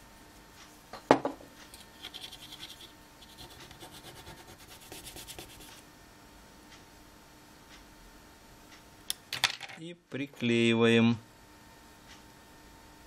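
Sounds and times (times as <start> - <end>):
scratching on circuit board: 1.7 - 5.8.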